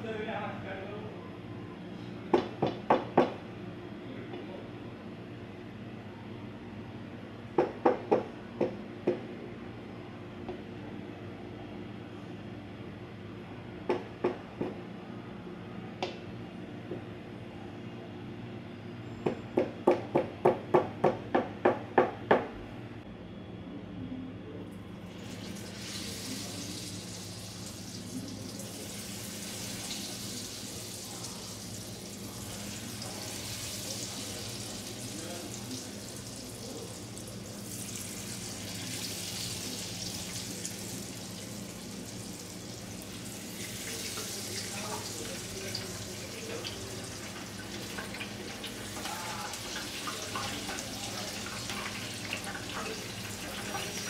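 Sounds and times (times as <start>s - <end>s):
oil sizzling: 25.1s - 54.0s.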